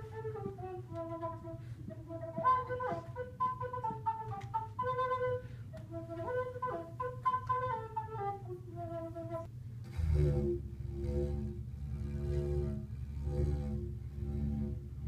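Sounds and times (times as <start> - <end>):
flute melody: 0.0 - 9.5
didgeridoo drone: 7.6 - 15.0.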